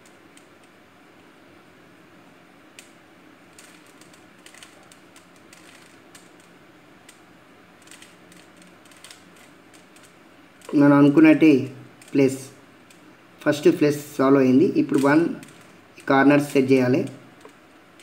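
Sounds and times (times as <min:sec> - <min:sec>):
puzzle cube clicking: 0:02.8 - 0:07.2, 0:07.8 - 0:10.8, 0:12.0 - 0:13.6, 0:14.8 - 0:15.7.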